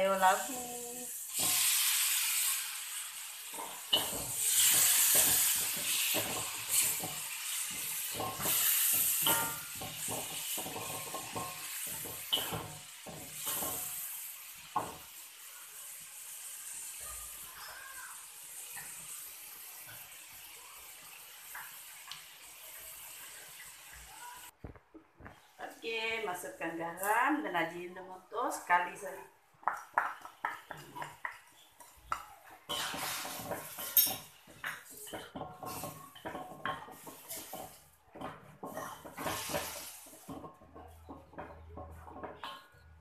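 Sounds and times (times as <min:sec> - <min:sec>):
food sizzling in hot oil: 0:00.0 - 0:24.6, 0:29.0 - 0:43.0
spatula scraping a wok: 0:01.2 - 0:14.5, 0:31.5 - 0:42.9.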